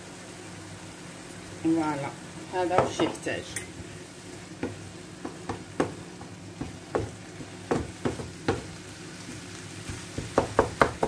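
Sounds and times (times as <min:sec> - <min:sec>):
frying sizzle: 0:00.0 - 0:11.0
spatula knocking against pan: 0:04.6 - 0:08.8, 0:10.1 - 0:11.0.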